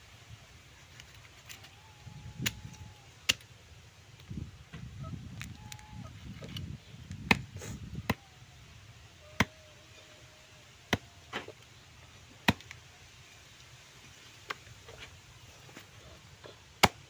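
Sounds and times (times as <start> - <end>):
machete chopping meat: 7.2 - 7.5, 16.8 - 17.0.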